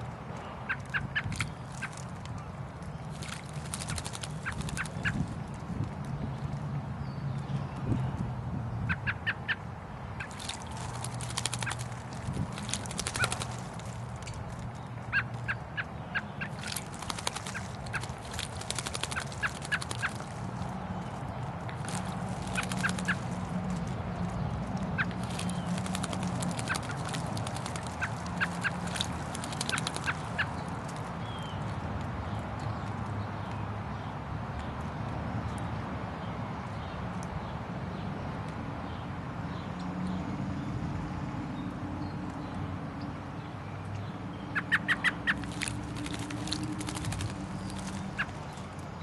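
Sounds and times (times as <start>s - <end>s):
bird splashing in water: 0.7s - 5.4s, 10.2s - 31.6s, 44.6s - 48.8s
quick bird chirps: 3.0s - 5.2s, 10.2s - 14.0s, 14.9s - 21.2s, 21.8s - 23.4s, 25.0s - 31.6s, 44.4s - 48.8s.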